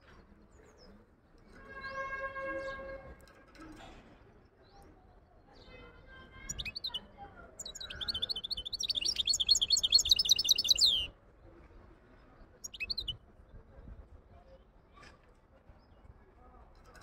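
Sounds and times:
finch singing: 6.4s - 11.1s, 12.6s - 13.2s.

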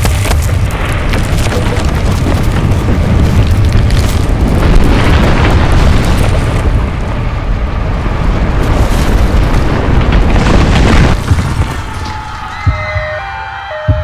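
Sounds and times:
deep rumbling crash: 0.0s - 12.8s.

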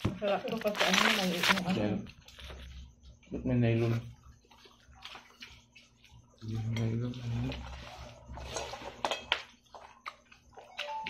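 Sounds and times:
spoons clattering on plates: 8.4s - 9.6s
tableware clinks: 8.5s - 9.4s.

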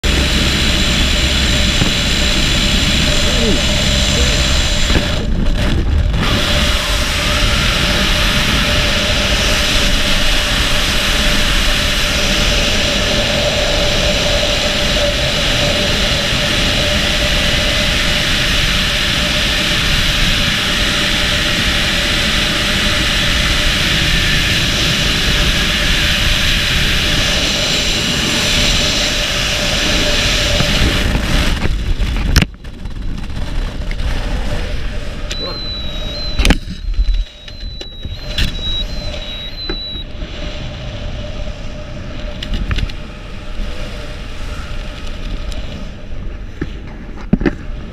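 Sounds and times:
wind rushing over microphone: 0.0s - 47.9s
faint steady whistle: 35.3s - 42.4s.

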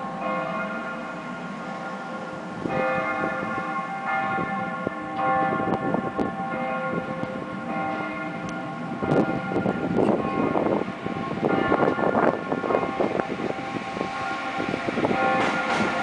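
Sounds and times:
bells ringing: 0.0s - 16.0s
freight train rumble: 0.0s - 16.0s
train wheels knocking: 14.8s - 16.0s.

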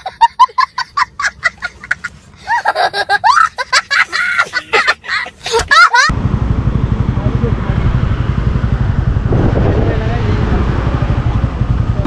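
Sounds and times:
young child laughing hysterically: 0.0s - 6.1s.

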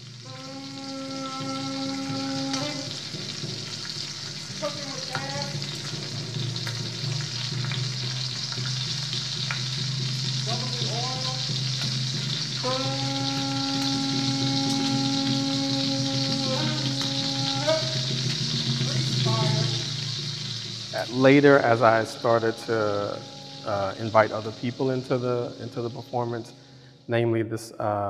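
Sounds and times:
conch shell horn: 0.0s - 6.3s, 10.4s - 26.5s
hot oil sizzling: 0.0s - 27.1s.

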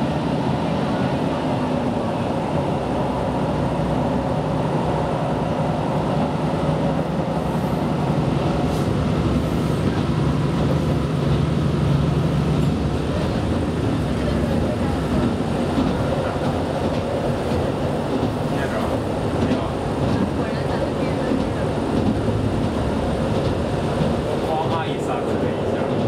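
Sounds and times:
diesel engine drone: 0.0s - 20.0s
train wheels on rails: 0.0s - 26.0s.

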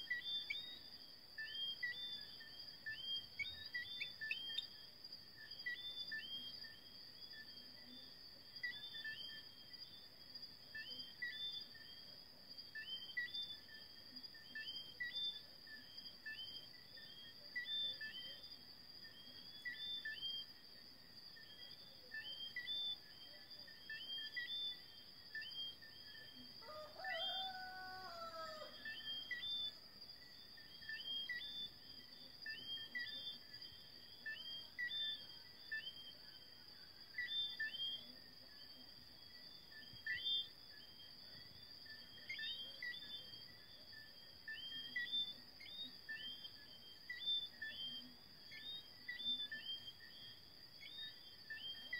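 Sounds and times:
frogs chirping: 0.0s - 51.9s
high insect drone: 15.7s - 51.9s
rooster crowing: 26.6s - 28.9s.

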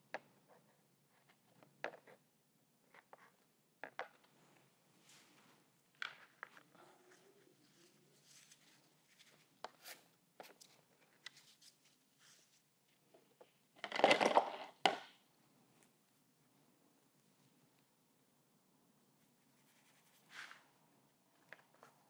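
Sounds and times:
faint scratches and taps: 0.1s - 2.2s.

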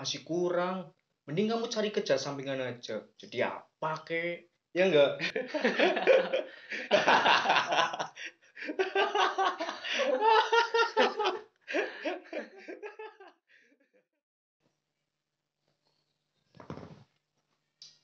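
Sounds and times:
young men laughing: 5.1s - 13.4s.

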